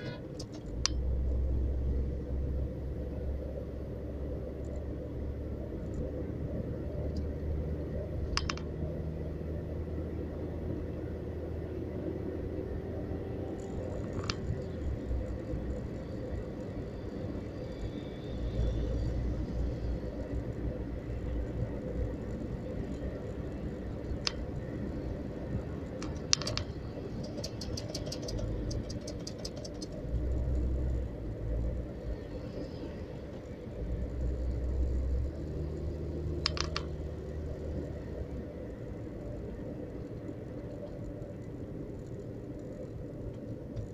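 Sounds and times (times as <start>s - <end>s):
car engine and tyre rumble: 0.0s - 43.9s
rapid ticks: 26.0s - 31.0s.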